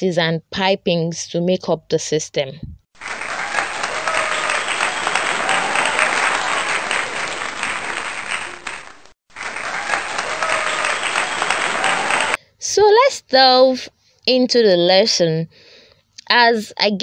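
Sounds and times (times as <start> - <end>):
audience applauding: 3.0 - 12.4.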